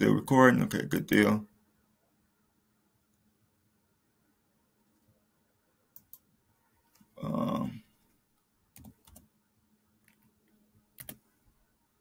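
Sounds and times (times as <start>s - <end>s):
computer keyboard keystrokes: 8.8s - 9.3s, 11.0s - 11.2s.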